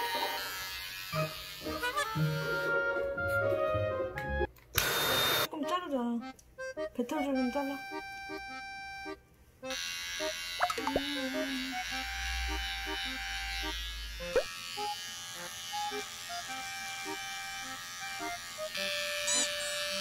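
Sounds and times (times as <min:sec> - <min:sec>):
electric hair trimmer buzzing: 0:00.0 - 0:02.8, 0:04.8 - 0:05.5, 0:09.7 - 0:20.0
light background music: 0:01.2 - 0:04.5, 0:06.6 - 0:09.2.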